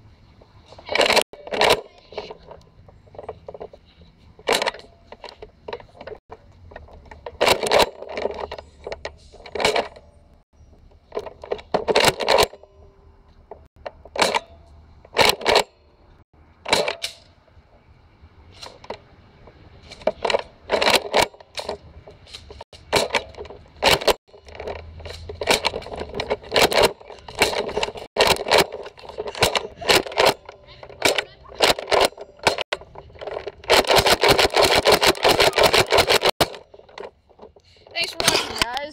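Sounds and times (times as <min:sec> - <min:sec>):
toy blaster plastic clacks: 0:22.4 - 0:37.1.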